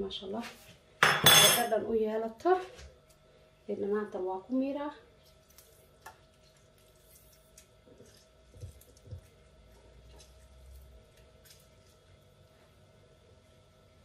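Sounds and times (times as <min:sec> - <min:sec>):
faint steady hum: 0:00.0 - 0:14.0
wet squishing of lemon squeezing: 0:05.1 - 0:13.4.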